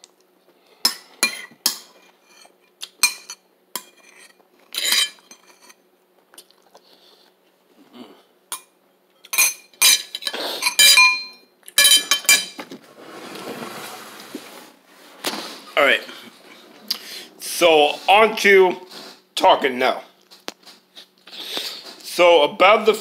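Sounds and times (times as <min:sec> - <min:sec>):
cutlery clinking against a dish: 0:00.9 - 0:05.8, 0:08.5 - 0:12.6
soft scraping rustle: 0:12.8 - 0:18.2.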